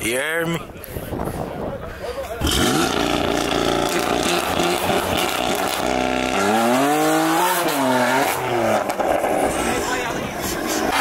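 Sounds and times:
car engine revving: 2.4 - 11.0.

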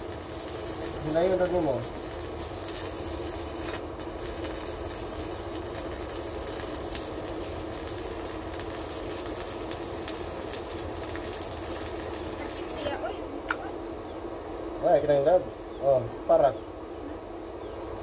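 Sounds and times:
welding arc crackling and sizzling: 0.0 - 14.0.

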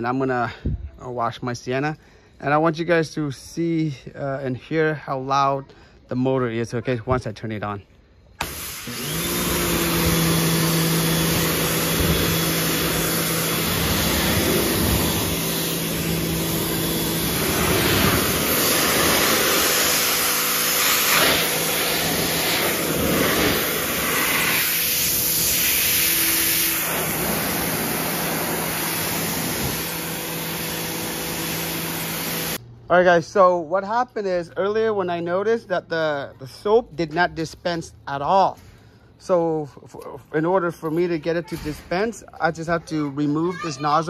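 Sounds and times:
pressure washer motor humming: 8.4 - 32.6
water jet hissing: 8.4 - 32.6.

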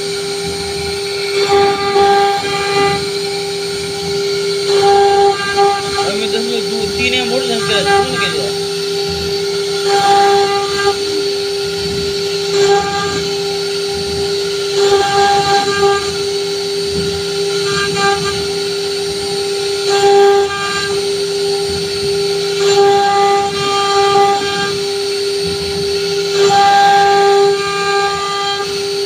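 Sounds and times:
router spindle whining: 0.0 - 29.0
bit cutting into wood: 1.1 - 13.7.

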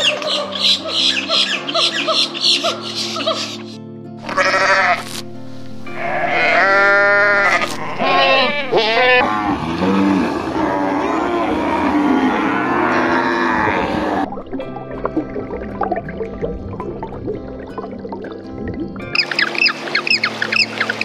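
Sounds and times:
background music: 0.0 - 21.0
sheep bleating: 4.2 - 5.2, 5.9 - 14.3.

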